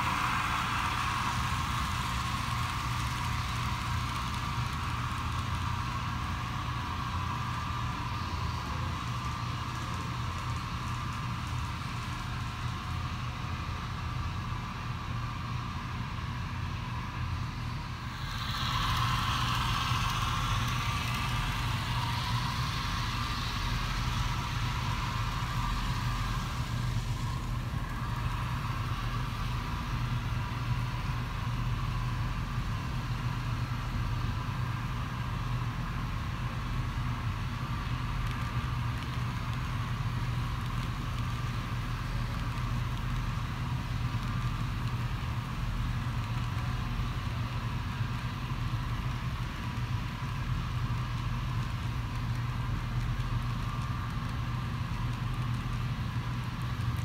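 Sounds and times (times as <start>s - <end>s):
low motor hum: 16.5s - 32.1s.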